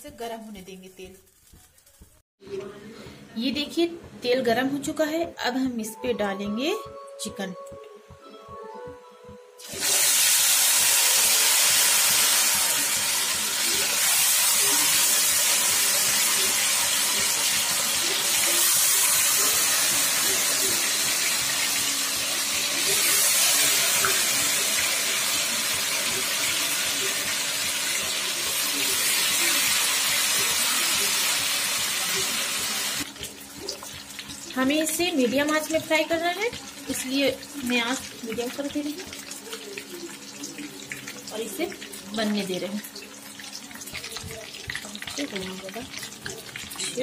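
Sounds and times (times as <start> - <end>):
chicken deep-frying in oil: 9.6 - 47.0.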